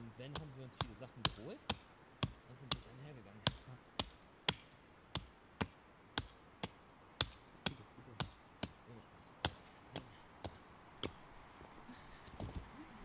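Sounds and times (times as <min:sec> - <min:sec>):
axe striking wood: 0:00.3 - 0:08.8, 0:09.4 - 0:11.2.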